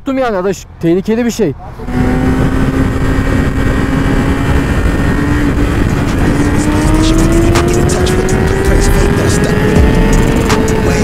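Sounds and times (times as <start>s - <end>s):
motorcycle engine accelerating: 1.8s - 11.0s
wind rush on microphone: 1.9s - 11.0s.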